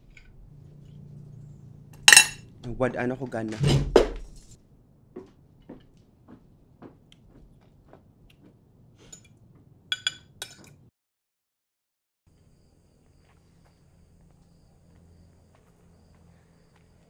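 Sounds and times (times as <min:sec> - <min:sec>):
faint crickets: 0:00.0 - 0:03.5, 0:12.3 - 0:17.0
cutlery tapping on plates: 0:02.0 - 0:02.4, 0:09.9 - 0:10.8
tableware clinking: 0:02.0 - 0:02.4, 0:09.1 - 0:10.8.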